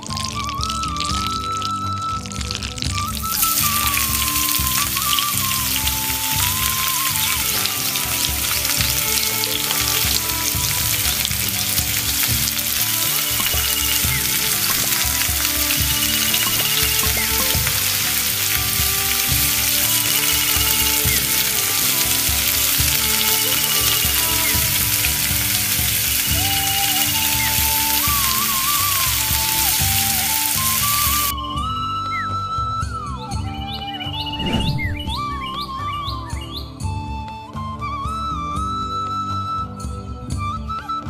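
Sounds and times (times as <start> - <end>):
fish sizzling in hot oil: 0.0 - 31.3
background music: 0.0 - 41.0.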